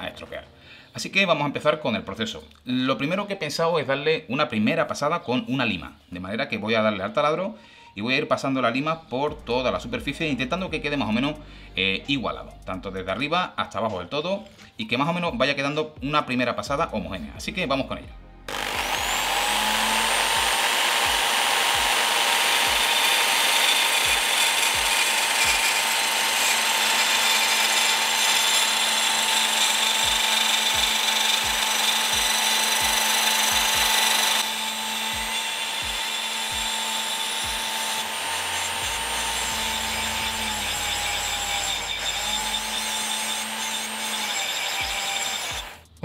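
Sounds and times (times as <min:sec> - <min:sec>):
file rasping on metal tube: 0:18.5 - 0:45.8
electric drill running: 0:18.5 - 0:46.0.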